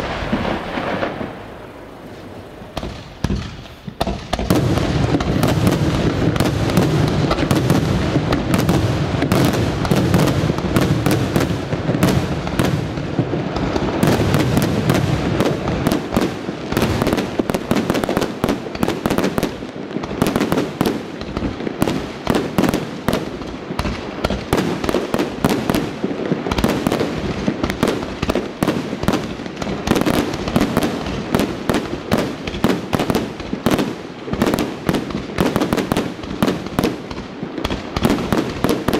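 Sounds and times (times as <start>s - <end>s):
firework shells bursting: 0.0s - 28.4s.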